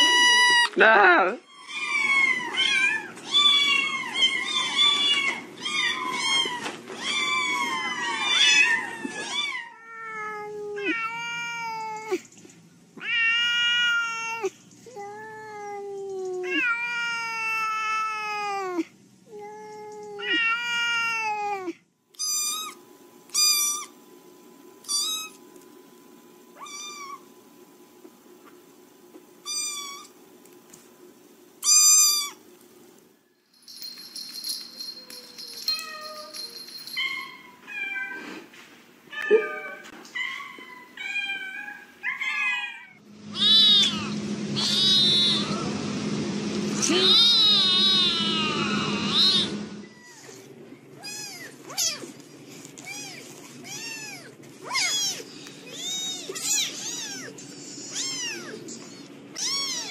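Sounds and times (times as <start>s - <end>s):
faint steady hum: 0.0s - 59.9s
kitten high-pitched mews: 29.4s - 30.1s, 51.0s - 52.1s, 59.3s - 59.9s
kittens mewing: 39.2s - 45.4s, 47.0s - 52.2s, 52.8s - 58.7s, 59.3s - 59.9s
cat giving long meows: 42.2s - 45.5s, 46.9s - 50.3s.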